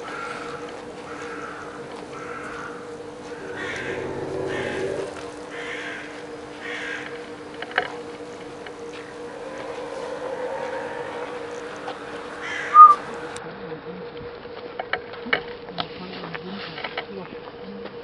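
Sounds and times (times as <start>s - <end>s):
steady machine hum: 1.8s - 13.4s
short calls: 9.0s - 13.4s.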